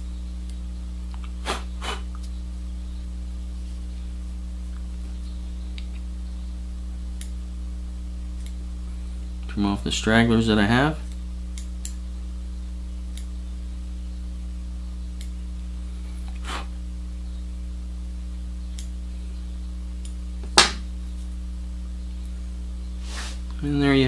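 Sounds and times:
low electrical hum: 0.0 - 24.0.

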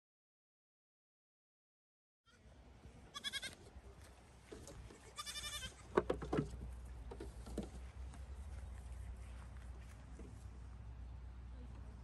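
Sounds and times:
goat kids bleating: 3.1 - 3.6, 5.0 - 5.9
hooves knocking on wooden deck: 5.9 - 7.8.

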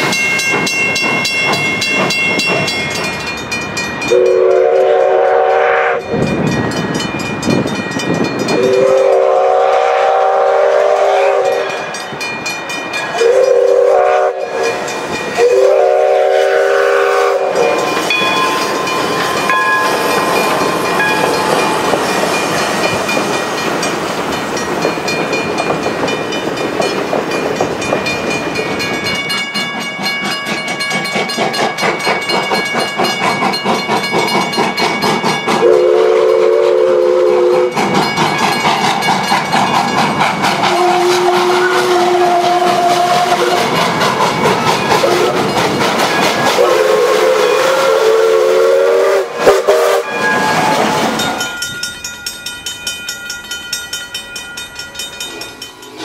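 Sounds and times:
rhythmic wheel clacking: 0.0 - 4.1, 17.5 - 35.6, 37.7 - 46.6
steam train running noise: 0.0 - 56.0
steam locomotive whistle: 4.1 - 6.2, 8.4 - 12.1, 13.1 - 18.7, 35.5 - 38.6, 40.5 - 51.6.

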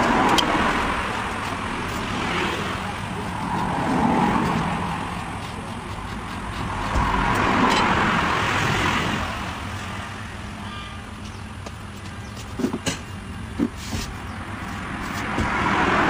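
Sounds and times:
vehicle passing: 0.0 - 10.6, 14.3 - 16.0.

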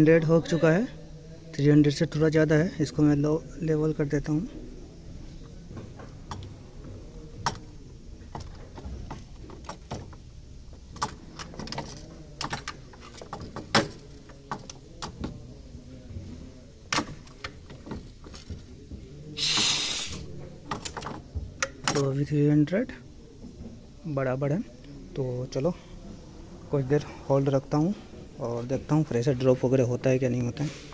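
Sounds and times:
gas hissing: 19.2 - 20.3.

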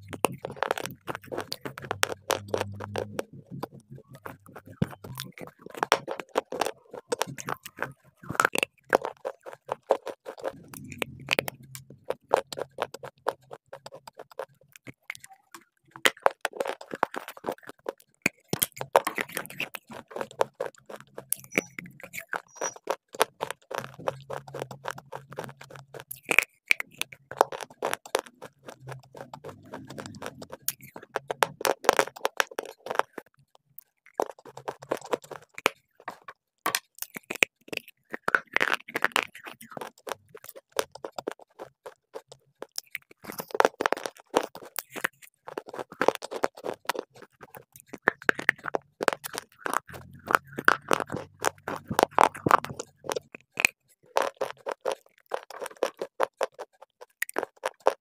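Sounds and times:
crunching and chewing clay: 0.0 - 58.0.

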